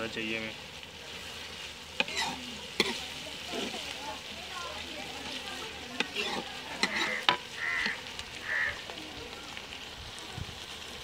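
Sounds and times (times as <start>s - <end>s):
onions sizzling in hot fat: 0.0s - 11.0s
metal ladle scraping pan: 1.1s - 3.9s, 5.0s - 8.0s.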